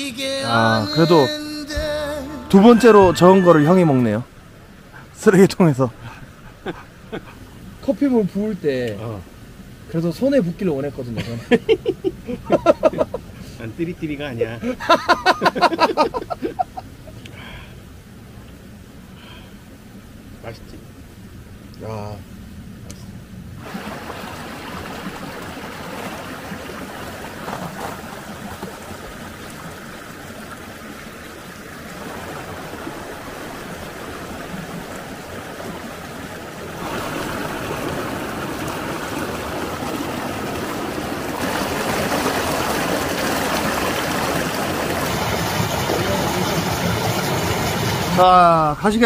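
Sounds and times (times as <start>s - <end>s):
stream flowing over rocks: 0.0s - 10.8s, 23.6s - 49.0s
small water cascade: 0.0s - 49.0s.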